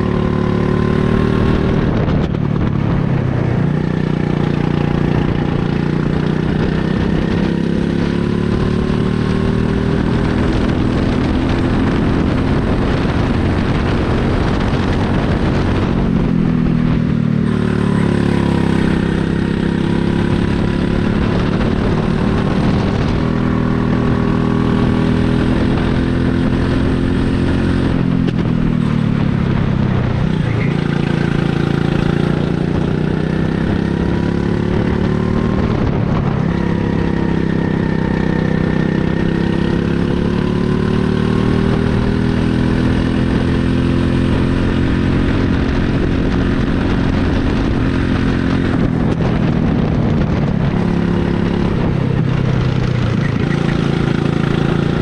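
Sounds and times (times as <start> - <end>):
go-kart engine revving: 17.3 - 29.3, 30.0 - 55.0.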